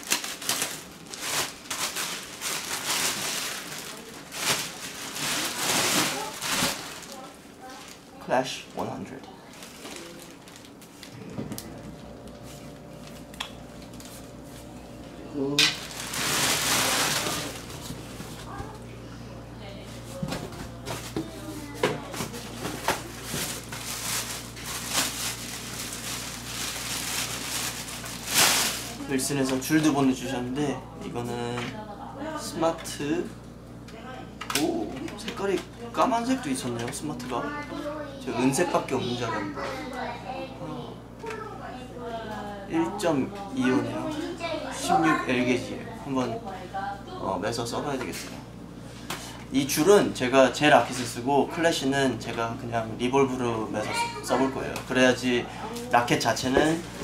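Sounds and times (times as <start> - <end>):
bubble wrap and plastic crinkling: 0.0 - 14.8, 15.6 - 18.8, 20.1 - 29.8.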